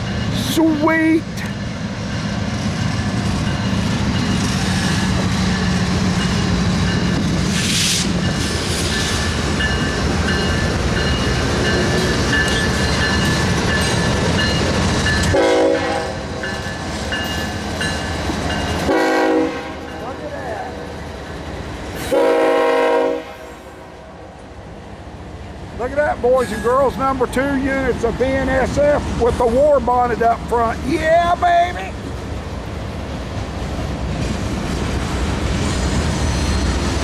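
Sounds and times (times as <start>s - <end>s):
diesel locomotive engines rumbling: 0.0s - 37.0s
train horn blasts: 15.3s - 16.4s, 18.8s - 20.0s, 22.0s - 24.0s.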